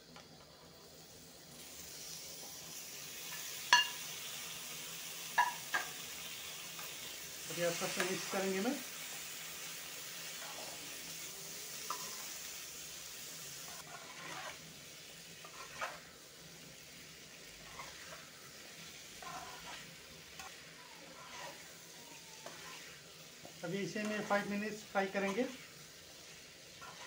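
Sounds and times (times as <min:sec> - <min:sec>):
food sizzling in a pan: 0:00.0 - 0:27.0
spatula scraping pan: 0:11.8 - 0:12.4, 0:13.6 - 0:16.2, 0:17.4 - 0:27.0.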